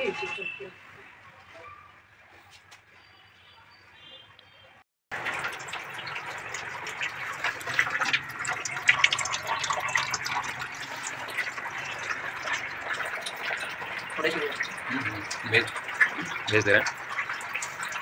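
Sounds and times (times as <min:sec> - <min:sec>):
water splashing into metal sink: 0:05.1 - 0:18.0.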